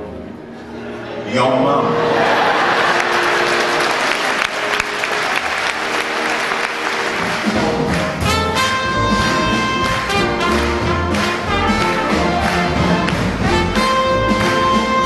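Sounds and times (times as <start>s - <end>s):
orchestra holding notes: 0.0s - 15.0s
audience applause: 2.0s - 15.0s
low bass notes: 7.2s - 15.0s
trumpet playing held notes: 8.1s - 15.0s.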